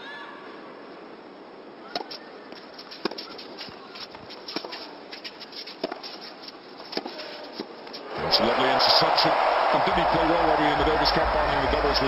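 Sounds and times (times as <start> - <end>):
racket striking tennis ball: 1.9 - 7.8
tennis ball bouncing: 1.9 - 8.0
crowd hum: 6.0 - 12.0.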